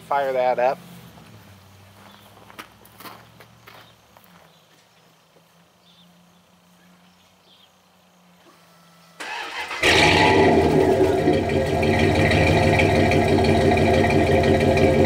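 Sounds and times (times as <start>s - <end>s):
loud engine running: 9.2s - 15.0s
truck engine cranking and starting: 9.2s - 15.0s.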